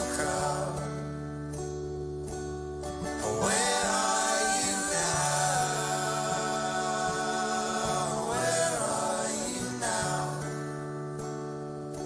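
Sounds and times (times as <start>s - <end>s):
people singing: 0.0s - 1.1s, 3.0s - 11.0s
acoustic guitar: 0.0s - 12.0s
double bass: 0.0s - 12.0s.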